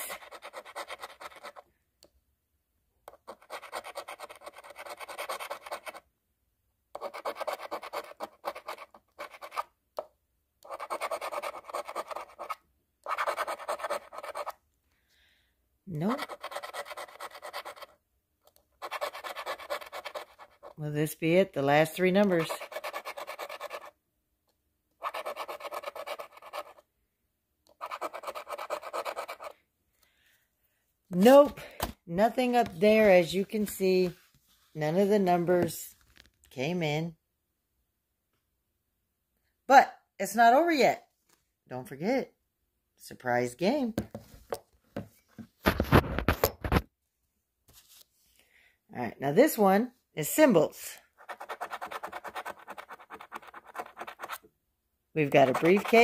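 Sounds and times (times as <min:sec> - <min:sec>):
lottery ticket scratching: 0:00.0 - 0:01.6, 0:03.2 - 0:06.0, 0:07.0 - 0:09.6, 0:10.7 - 0:14.6, 0:16.0 - 0:18.0, 0:18.8 - 0:23.9, 0:25.0 - 0:26.8, 0:27.7 - 0:29.5, 0:51.2 - 0:54.4, 0:55.2 - 0:56.0.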